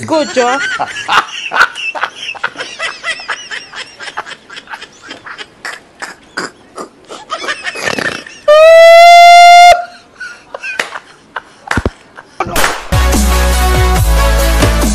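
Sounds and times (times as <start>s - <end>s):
man exclaiming excitedly: 8.5s - 9.9s
electronic music: 12.9s - 14.9s.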